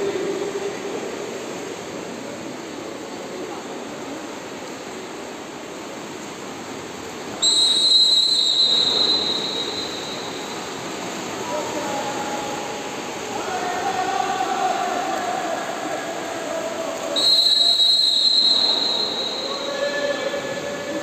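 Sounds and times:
pool hall noise: 0.0s - 21.0s
referee's whistle blast: 7.4s - 10.5s, 17.2s - 19.9s.

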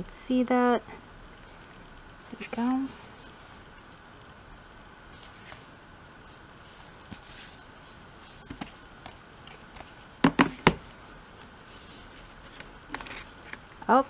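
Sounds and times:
photobook rustling: 5.1s - 13.9s
book knocking on table: 10.2s - 10.8s.

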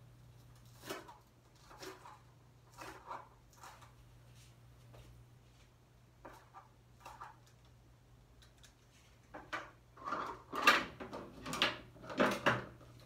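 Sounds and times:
plastic bowls clattering: 9.4s - 12.8s.

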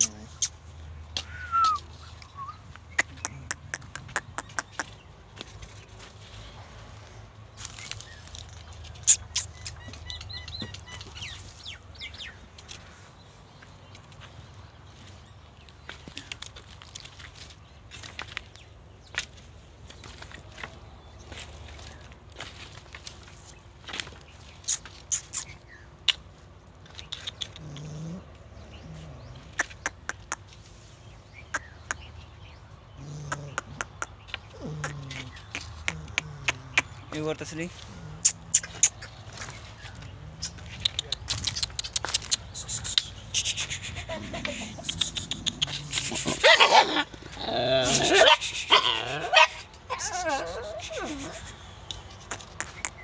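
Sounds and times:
birds chirping: 0.0s - 53.0s
dog grumbling: 27.5s - 29.6s, 33.0s - 37.0s, 37.8s - 38.8s, 44.0s - 51.5s
sliding bird calls: 33.0s - 53.0s
sharp clicks: 40.4s - 43.8s, 44.8s - 46.2s.

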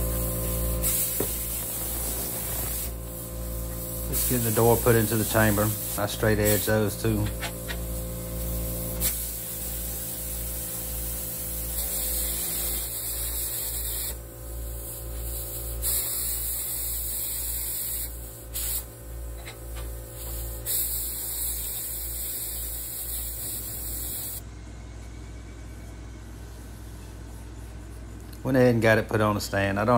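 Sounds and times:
plasma cutter hissing: 0.0s - 14.2s, 14.8s - 19.4s, 20.2s - 24.4s.

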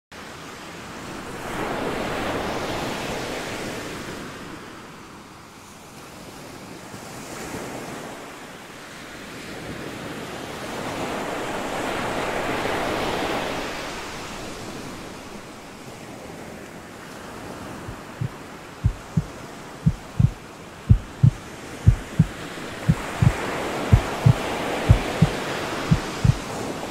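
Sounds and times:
ocean surf washing onto beach: 7.6s - 26.9s
low thumps in pairs: 18.9s - 19.3s, 19.9s - 26.4s.

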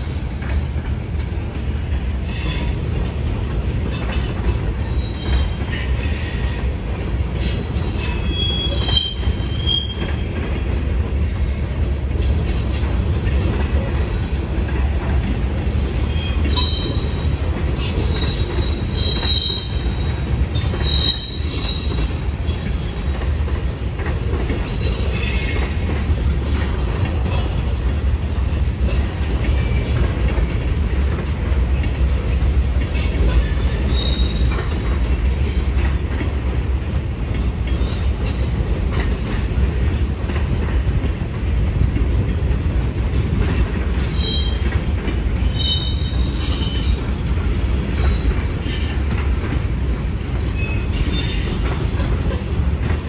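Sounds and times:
rail-joint clicks: 0.0s - 53.0s
steel wheels rumbling on rail: 0.0s - 53.0s
high wheel squeals: 20.8s - 22.0s, 33.6s - 34.6s.

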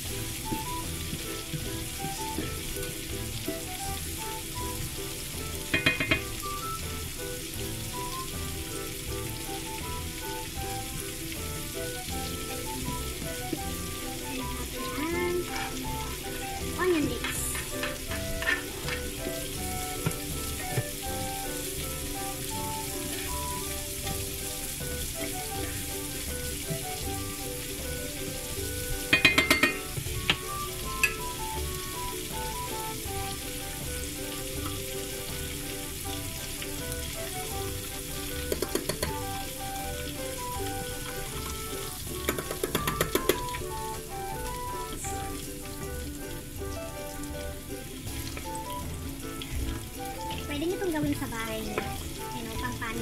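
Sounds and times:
food sizzling in hot oil: 0.0s - 53.0s
metal tongs clacking on pot: 5.7s - 6.3s, 17.2s - 19.0s, 29.1s - 30.4s, 38.5s - 39.2s, 42.3s - 43.5s.

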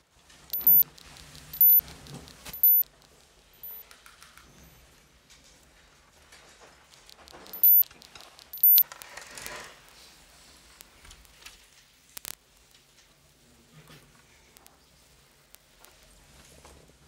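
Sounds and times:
short high beeps: 0.6s - 0.9s, 1.6s - 1.8s, 2.6s - 2.9s, 3.6s - 3.8s, 7.5s - 7.9s, 8.6s - 8.9s
rustling clicks: 6.9s - 9.6s
sparse crackles: 6.9s - 12.9s.

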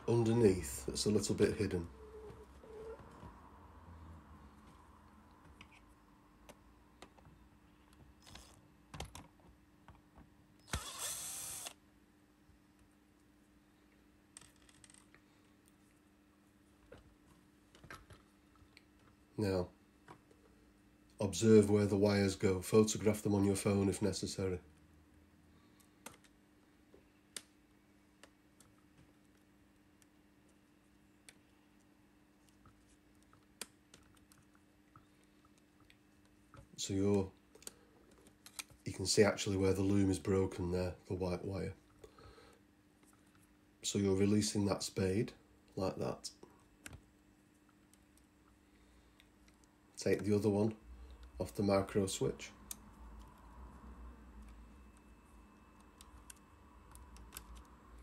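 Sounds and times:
low steady hum: 0.0s - 58.0s
electric screwdriver whirring: 10.7s - 11.8s.

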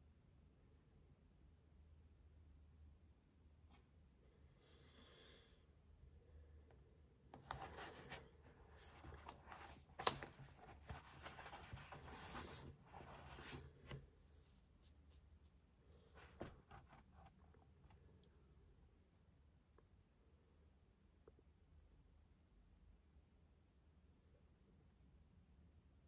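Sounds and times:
paper rustling and scratching: 7.4s - 15.4s, 16.0s - 17.6s.

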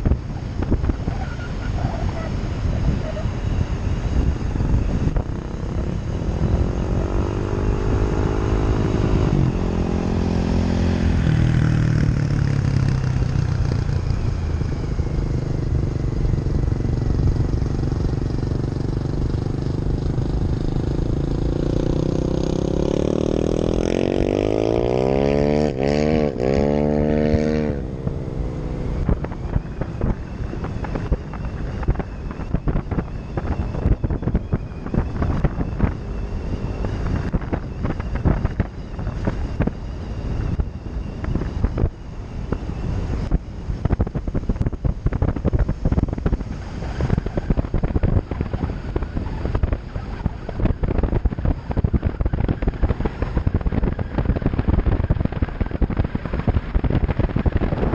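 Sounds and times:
wind buffeting microphone: 0.0s - 57.9s
vehicle engine revving: 5.1s - 14.2s, 15.0s - 41.9s
choppy crackling noise: 43.2s - 57.9s.

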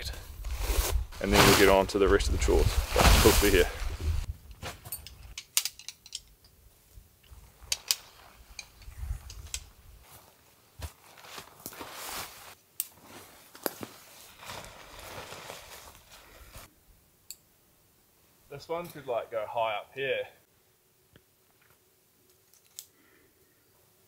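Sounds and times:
tarp rustling and flapping: 0.4s - 4.9s, 10.0s - 16.7s.

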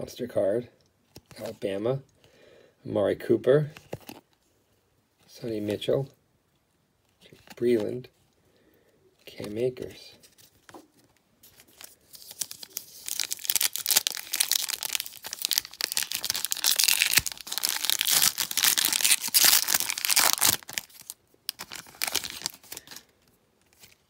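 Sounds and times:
wrapper rustling: 11.4s - 24.0s
foil wrapper crinkling and tearing: 11.5s - 23.1s.

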